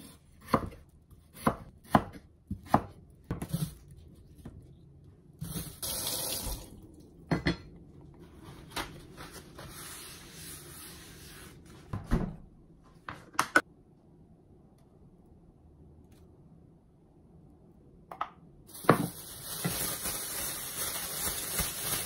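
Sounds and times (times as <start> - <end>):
crinkly plastic bag: 18.7 - 22.0.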